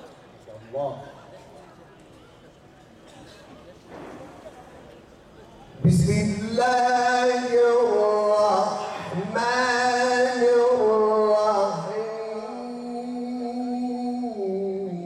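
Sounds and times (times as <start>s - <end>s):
man chanting melodically into microphone: 5.8s - 15.0s.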